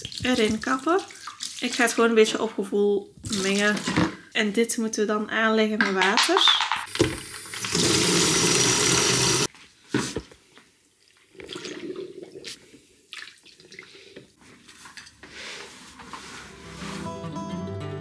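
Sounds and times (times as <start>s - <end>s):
water sloshing: 0.0s - 2.2s
tap water running into bucket: 6.9s - 9.5s
mop scrubbing floor: 14.4s - 17.1s
acoustic guitar music: 16.6s - 18.0s.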